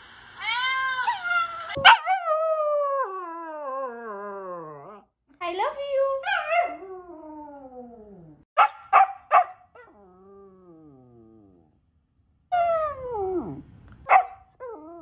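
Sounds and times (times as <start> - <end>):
puppy howling: 0.4 - 5.0, 12.5 - 15.0
puppy barking: 1.7 - 2.3, 8.6 - 9.9, 14.1 - 14.5.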